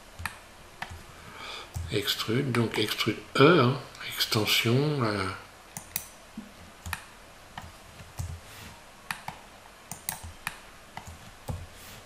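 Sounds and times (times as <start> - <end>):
keyboard and mouse clicking: 0.2 - 1.0, 5.8 - 6.1, 6.8 - 8.4, 9.1 - 11.7.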